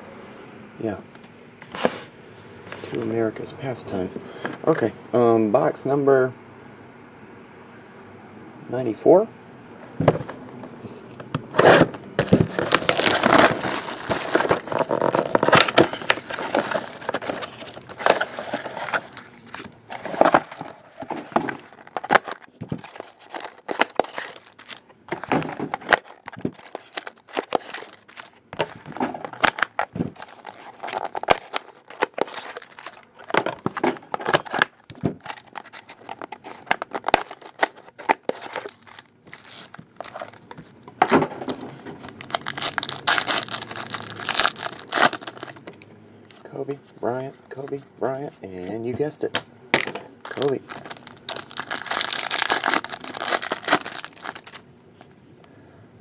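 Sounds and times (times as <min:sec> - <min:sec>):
plastic wrapping crinkling and tearing: 0:11.7 - 0:40.6, 0:41.5 - 0:45.7, 0:50.2 - 0:54.6
cards being handled: 0:12.2 - 0:40.7, 0:50.3 - 0:54.6.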